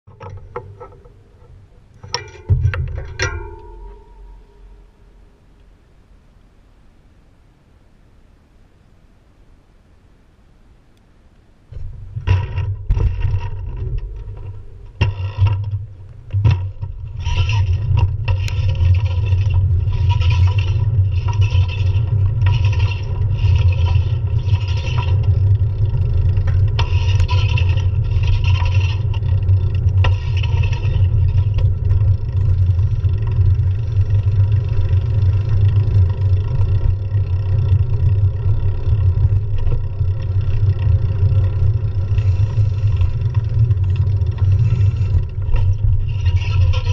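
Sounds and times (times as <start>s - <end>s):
wind and road rumble: 0.1s - 46.9s
bike rattling buzzes: 11.7s - 46.9s.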